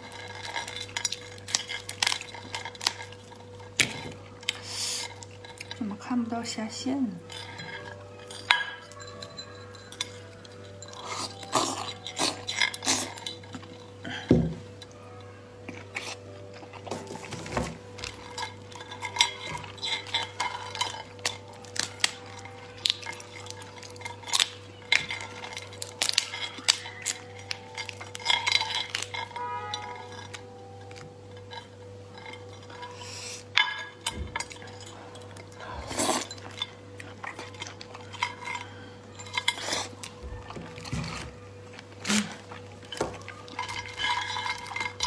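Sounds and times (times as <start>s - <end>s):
clinks against ceramic plate: 7.3s - 14.6s.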